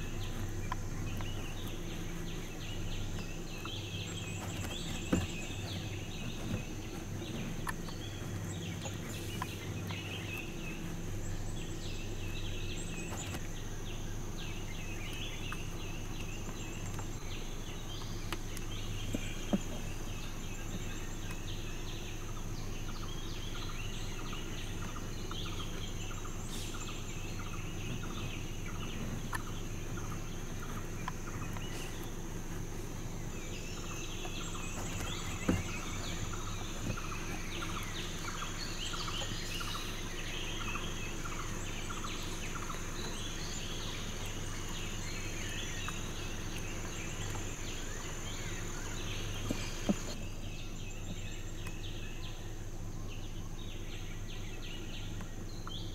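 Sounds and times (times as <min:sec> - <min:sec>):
bird chirps: 0:00.0 - 0:55.9
high insect drone: 0:00.0 - 0:55.9
low steady hum: 0:00.0 - 0:55.9.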